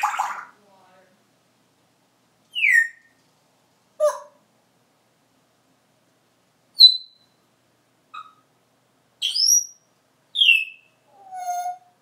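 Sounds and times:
parrot whistling: 2.5s - 3.1s, 6.8s - 7.4s, 8.2s - 8.4s, 9.2s - 9.8s, 10.4s - 12.0s.

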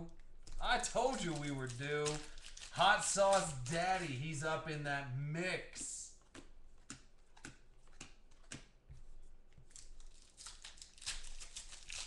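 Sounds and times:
plastic card holders crinkling: 0.3s - 4.3s.

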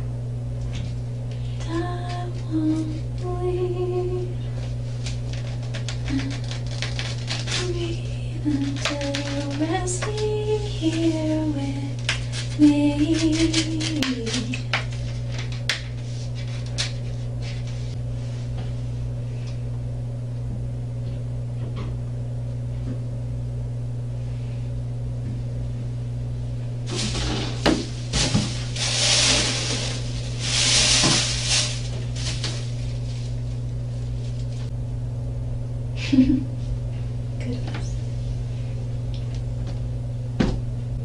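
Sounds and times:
low room hum: 0.0s - 41.0s
papers rustling and knocks: 26.9s - 33.3s.

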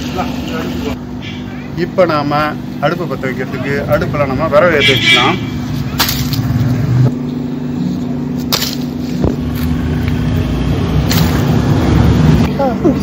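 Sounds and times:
steady low hum: 0.3s - 13.0s.

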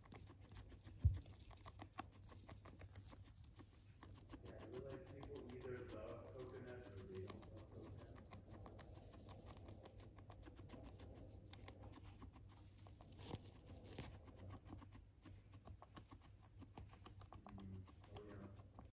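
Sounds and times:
guinea pig chewing grass: 0.0s - 19.0s.

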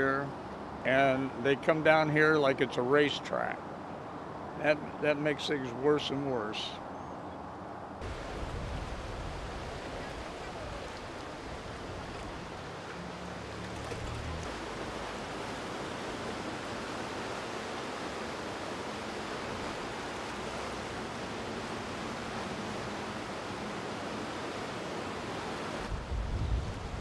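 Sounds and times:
floodwater rushing: 8.0s - 27.0s.

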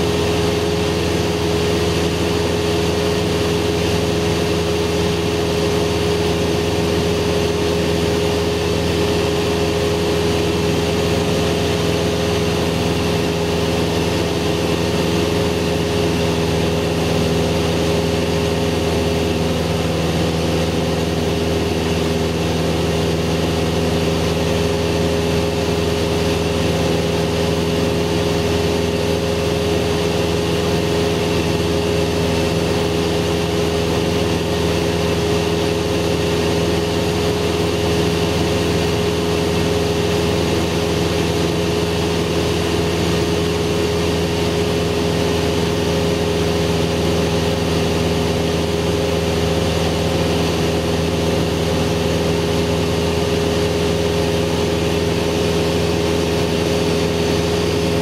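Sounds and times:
airplane engine and propeller drone: 0.0s - 58.0s.

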